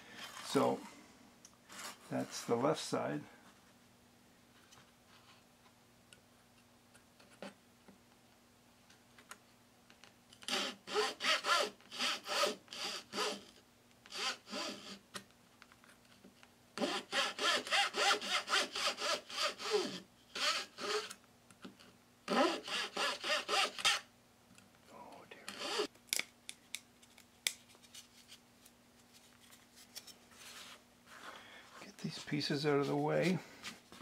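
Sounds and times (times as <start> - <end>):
metal file rasping on wood: 16.8 - 21.1, 22.3 - 24.0.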